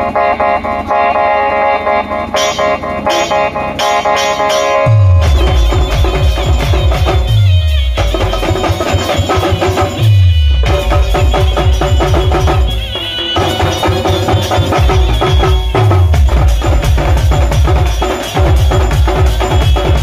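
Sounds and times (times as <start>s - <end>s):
keyboard: 0.0s - 20.0s
folk band playing drums: 2.4s - 20.0s
deep bass drops: 4.9s - 8.6s, 10.0s - 12.8s.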